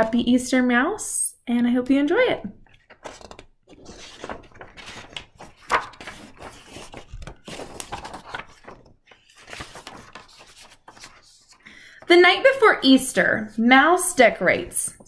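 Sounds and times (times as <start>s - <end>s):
book pages rustling: 2.6s - 11.7s.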